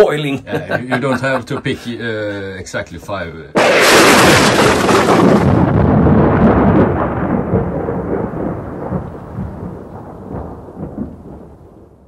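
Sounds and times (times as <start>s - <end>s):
deep rumble like thunder: 3.6s - 12.0s.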